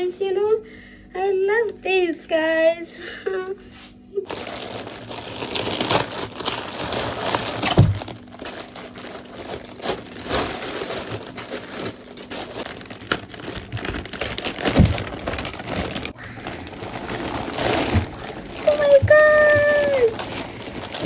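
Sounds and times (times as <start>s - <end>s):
plastic bags crinkling: 4.2s - 21.0s.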